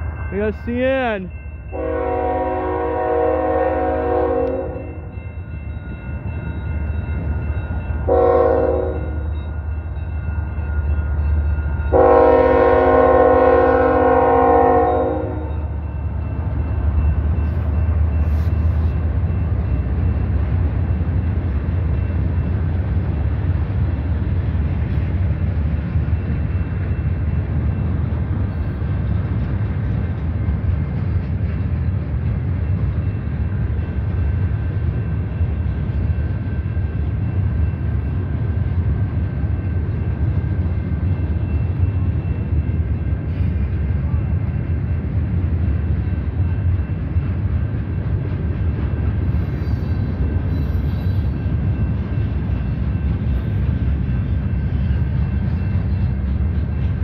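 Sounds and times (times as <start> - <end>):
train rumbling past: 0.0 - 57.0
locomotive air horn: 1.7 - 4.9, 8.1 - 9.1, 11.9 - 15.5.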